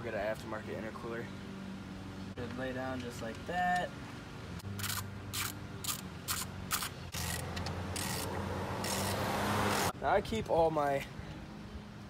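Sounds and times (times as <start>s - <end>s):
ratchet wrench clicking: 4.8s - 9.8s.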